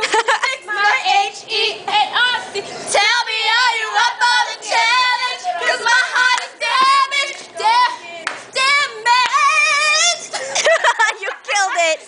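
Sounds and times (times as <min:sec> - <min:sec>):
girls singing: 0:00.0 - 0:12.0
hand claps: 0:08.2 - 0:08.5.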